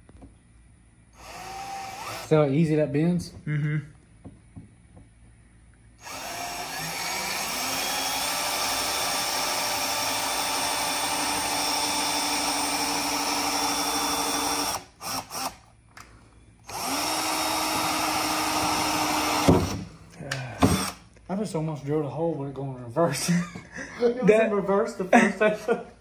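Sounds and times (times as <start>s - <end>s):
power drill boring through metal: 1.2s - 2.3s, 6.0s - 15.6s, 16.7s - 19.8s, 20.6s - 21.0s.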